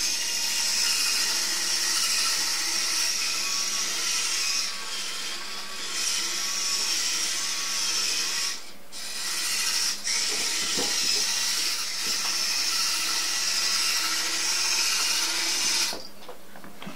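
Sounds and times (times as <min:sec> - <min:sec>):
toy robot motor whirring: 0:00.0 - 0:16.1.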